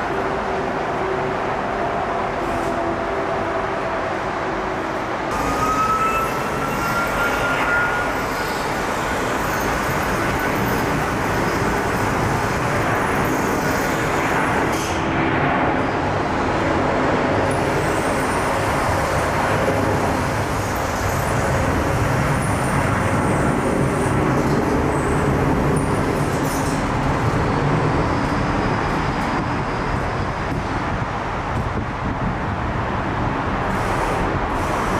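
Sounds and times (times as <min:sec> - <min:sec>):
jet engines roaring: 0:07.6 - 0:31.7.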